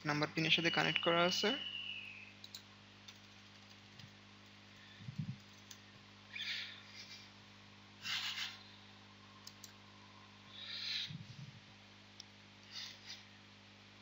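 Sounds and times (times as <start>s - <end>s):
faint electrical hum: 0.0s - 14.0s
computer keyboard typing: 2.4s - 4.1s, 5.4s - 5.8s, 9.4s - 9.7s.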